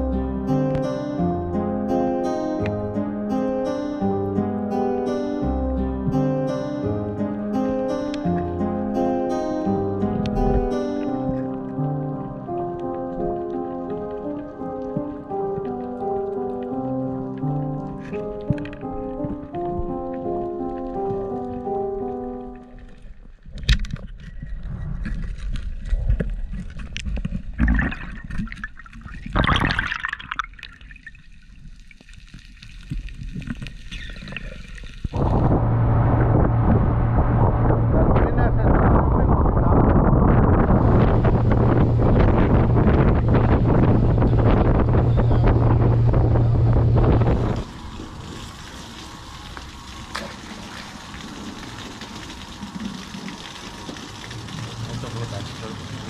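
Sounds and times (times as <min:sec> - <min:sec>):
faint low rumble: 0:07.6 - 0:28.0, 0:32.8 - 0:56.0
underwater water rushing: 0:09.3 - 0:56.0
bubbly bursts: 0:27.5 - 0:35.6, 0:40.7 - 0:56.0
wind and water hiss: 0:40.3 - 0:56.0.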